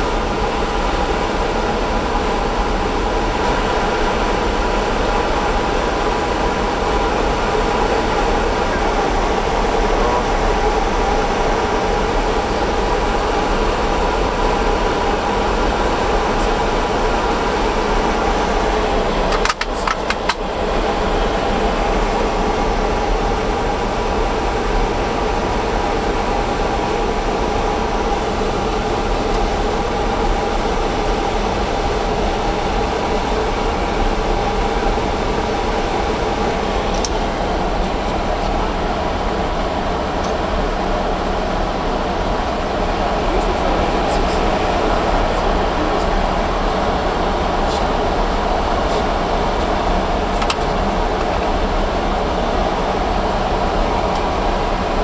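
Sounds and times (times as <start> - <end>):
engine and air conditioning hum: 0.0 - 55.0
rush of air in cockpit: 0.0 - 55.0.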